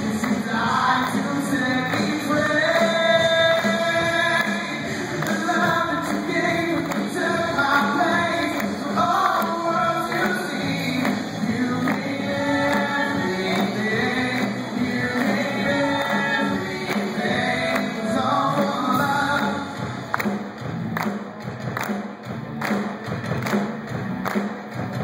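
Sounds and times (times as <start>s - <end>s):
group singing: 0.0s - 19.8s
drums: 0.0s - 25.0s.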